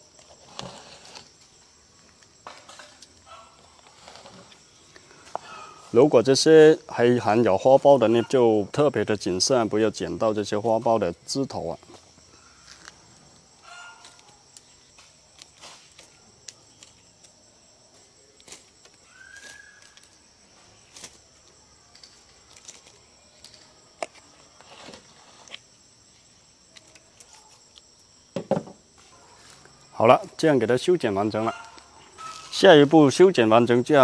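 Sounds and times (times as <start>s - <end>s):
insects chirring: 0.0s - 34.0s.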